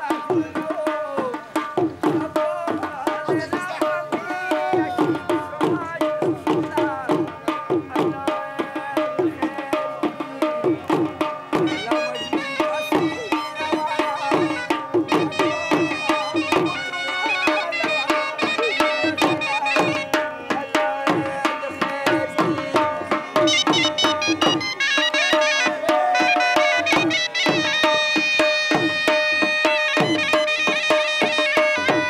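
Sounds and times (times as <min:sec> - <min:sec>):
hand drum strokes: 0:00.0 - 0:32.0
melody instrument long held notes: 0:11.6 - 0:20.1, 0:22.4 - 0:32.0.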